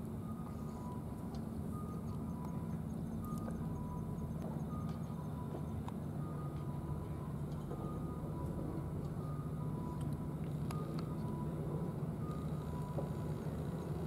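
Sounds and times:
low engine-like rumble: 0.0 - 14.0
two-note electronic beep: 1.7 - 8.2.

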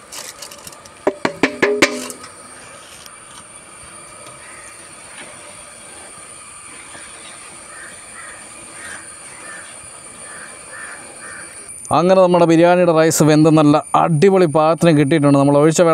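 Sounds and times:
faint high whine: 0.0 - 15.9
rice boiling with steady hiss: 0.0 - 15.9
metal clank: 0.2 - 2.4
crows cawing: 4.3 - 5.0, 6.9 - 11.7.

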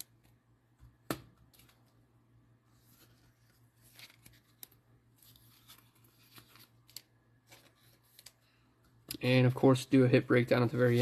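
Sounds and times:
cards rustling and sliding: 1.4 - 2.0, 2.7 - 8.6.

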